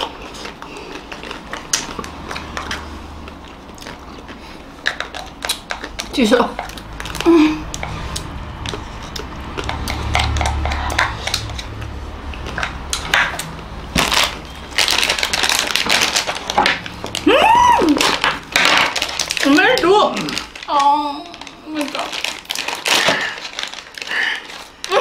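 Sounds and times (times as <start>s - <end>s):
plastic wrappers crinkling: 0.0s - 10.6s, 11.2s - 25.0s
wooden spoons scraping paper cups: 2.1s - 13.5s.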